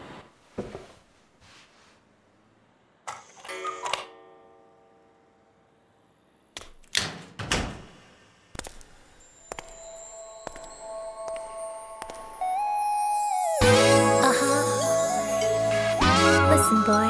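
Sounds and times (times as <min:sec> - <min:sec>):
bright tinkling chime: 0:09.0 - 0:16.0.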